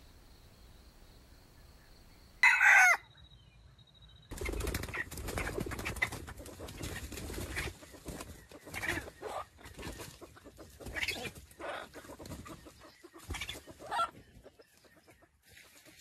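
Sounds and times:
rooster call: 2.4 - 3.0
wings flapping and scuffling in leaves: 4.3 - 16.0.

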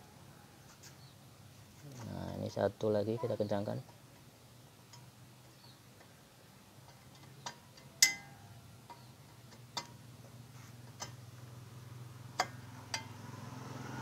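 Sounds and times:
metallic ring: 8.0 - 8.5, 12.4 - 13.4.

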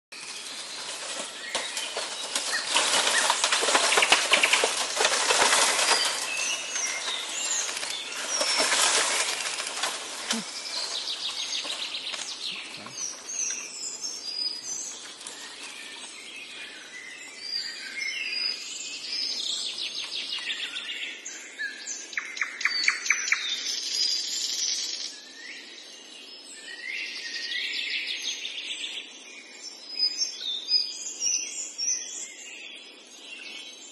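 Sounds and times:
birds chirping: 0.1 - 33.9
elephant feeding on bamboo: 0.2 - 13.5.

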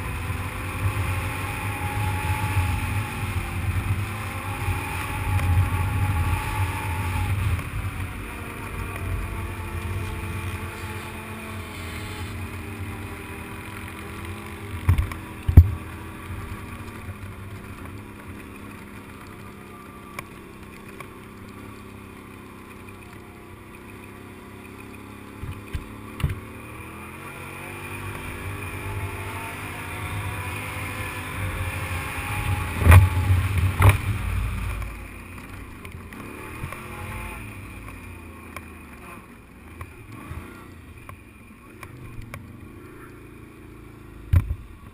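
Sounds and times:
quad bike engine running: 0.0 - 44.9.

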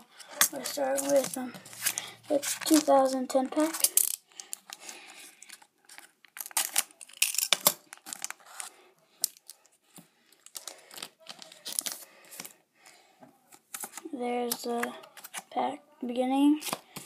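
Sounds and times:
plastic wrapper tearing and crinkling: 0.2 - 9.7, 10.4 - 12.5.

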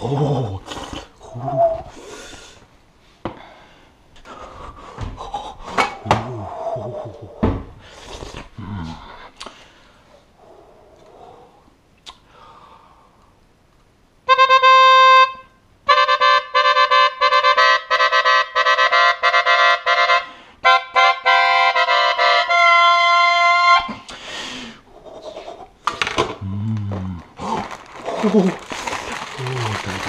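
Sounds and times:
solo saxophone: 14.3 - 24.0.

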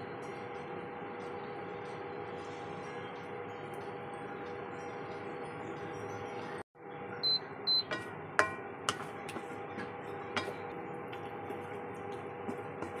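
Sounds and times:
spatula knocking on pan: 7.7 - 11.6, 12.4 - 13.0.

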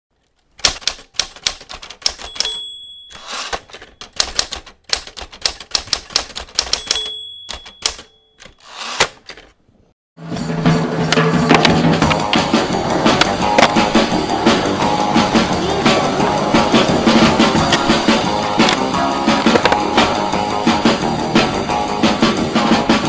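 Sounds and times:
typewriter carriage swishing: 0.5 - 9.6
typewriter key strikes: 0.6 - 9.0
typewriter bell ding: 2.1 - 4.3, 6.6 - 8.9.

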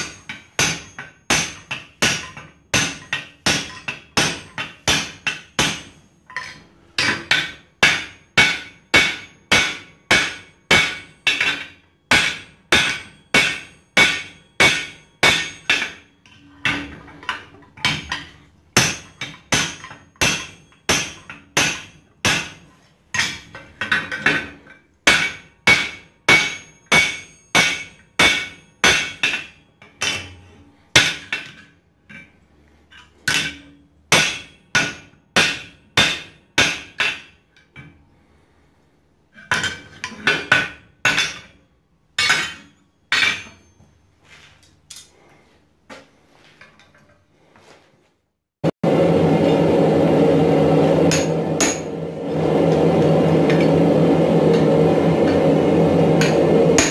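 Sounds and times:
hammer striking metal with ring: 0.0 - 17.0, 17.8 - 23.6, 25.0 - 31.6, 33.2 - 37.9, 39.5 - 41.6, 42.2 - 44.0, 50.8 - 55.5, 56.1 - 56.9.

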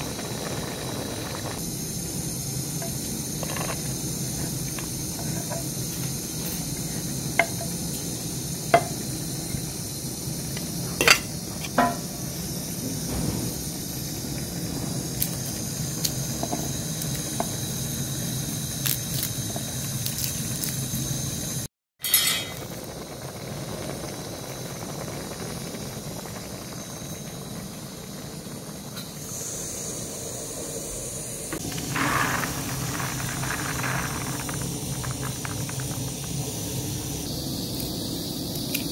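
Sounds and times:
beans poured into colander: 31.6 - 36.5.

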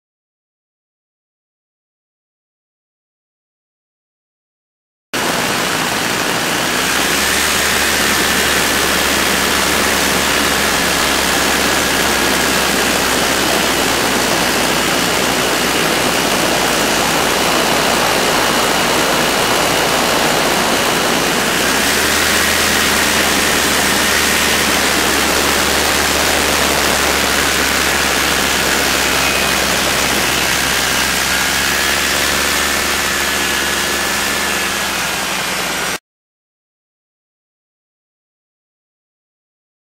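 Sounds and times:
aircraft engine and propeller: 5.2 - 36.0
faint high whine: 7.0 - 35.5.

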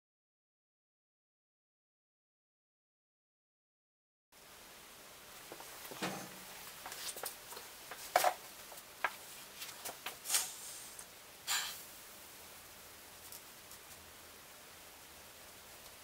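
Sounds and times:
cardboard scraping rustles: 5.6 - 8.4.

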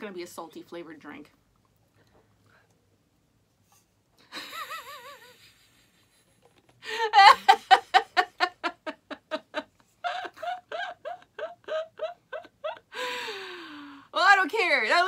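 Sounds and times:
woman laughing: 4.3 - 5.6, 6.8 - 13.1.

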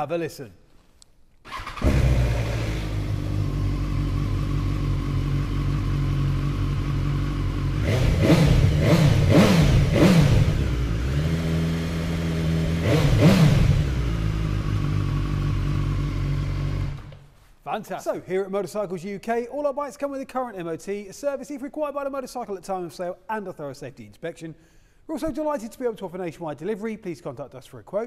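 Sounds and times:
motorcycle engine idling and revving: 1.5 - 17.2.

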